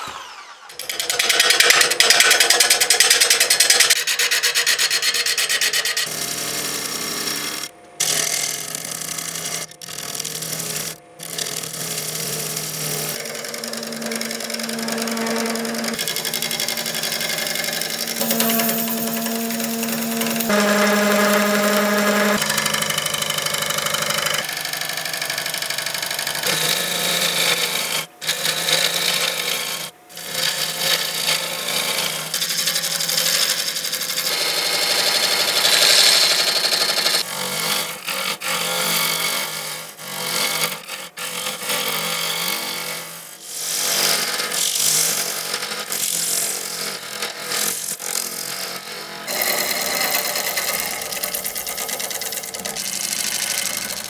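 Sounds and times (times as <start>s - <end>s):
wood lathe humming: 0.0s - 43.2s, 46.7s - 54.0s
gouge hissing cut: 13.2s - 24.4s, 49.3s - 54.0s.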